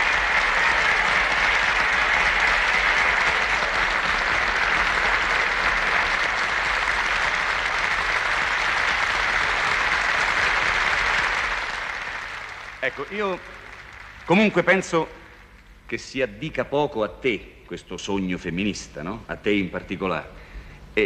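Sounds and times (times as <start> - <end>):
studio audience applauding: 0.0 - 15.6.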